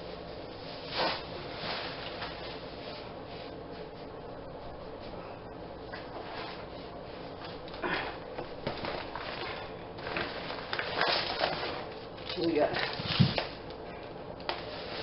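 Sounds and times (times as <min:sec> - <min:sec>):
shopping bag rustling: 0:08.6 - 0:13.6.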